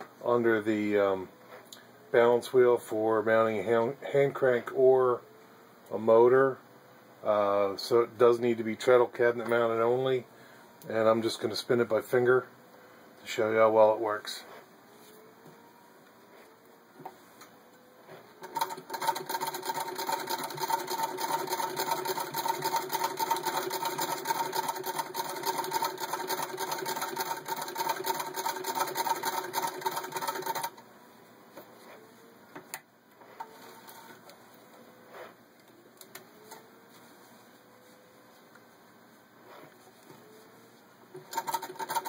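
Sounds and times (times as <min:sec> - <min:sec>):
sewing machine clatter: 0:18.4 - 0:30.8, 0:41.2 - 0:42.0.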